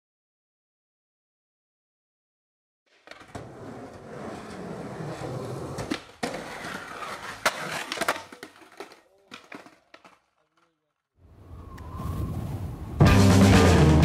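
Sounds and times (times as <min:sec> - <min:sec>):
skateboard clacks: 0:02.9 - 0:10.8
skateboard wheels rolling on concrete: 0:02.9 - 0:14.0.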